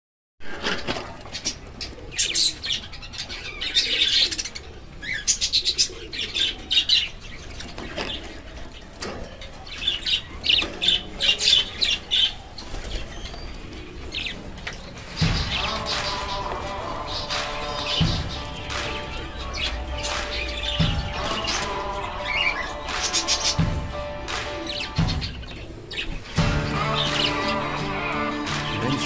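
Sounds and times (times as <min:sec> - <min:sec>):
doves cooing: 0:00.6 - 0:29.0
doves flapping wings: 0:12.6 - 0:21.9.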